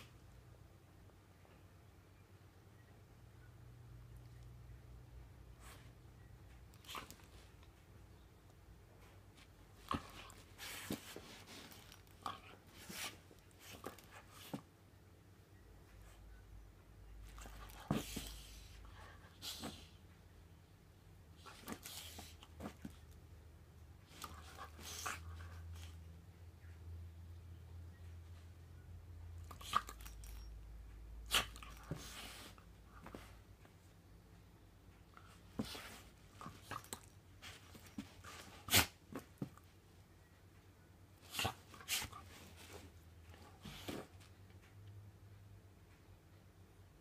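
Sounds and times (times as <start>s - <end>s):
soft rustling on carpet: 9.0s - 14.7s, 31.7s - 39.9s
puppy scuffing on carpet: 9.4s - 11.9s, 35.3s - 36.8s.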